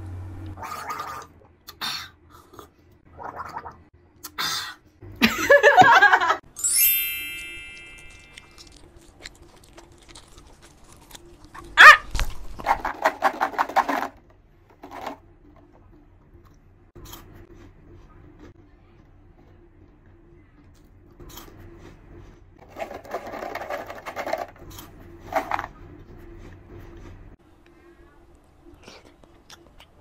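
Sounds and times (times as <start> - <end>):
sparkling chime sweeping down: 6.6 - 8.4.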